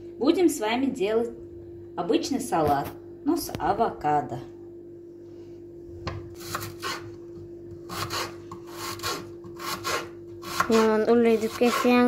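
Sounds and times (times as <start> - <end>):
knife cutting onion on wooden board: 6.4 - 12.0.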